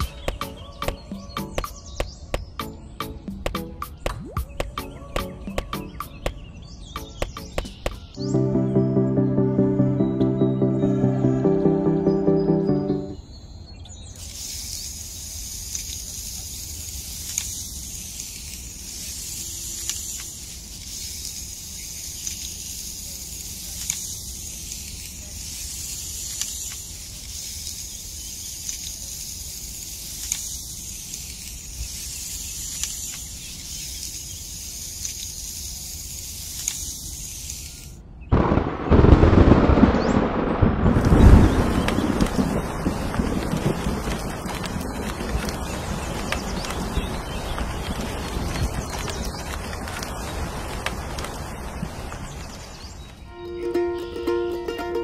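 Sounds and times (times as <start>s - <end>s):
steady high hiss: 0.0s - 13.3s, 14.1s - 39.5s
thunder rumble: 38.3s - 52.7s.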